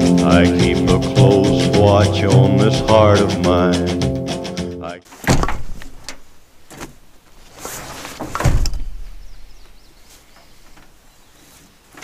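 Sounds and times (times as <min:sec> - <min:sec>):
rustling and handling: 0:05.1 - 0:12.0.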